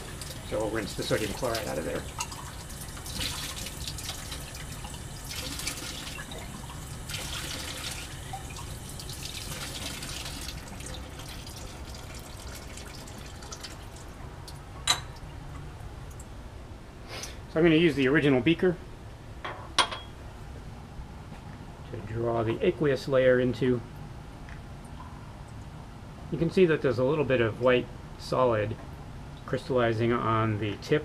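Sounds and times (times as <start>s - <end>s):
water running and splashing: 0.0s - 14.6s.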